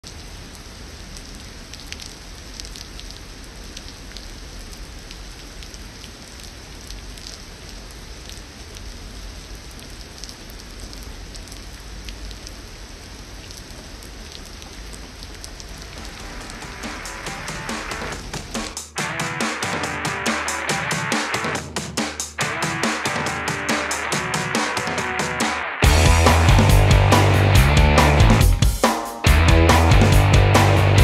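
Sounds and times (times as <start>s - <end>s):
heavy rain falling: 0.0s - 28.7s
sharp raindrop hits: 15.0s - 31.0s.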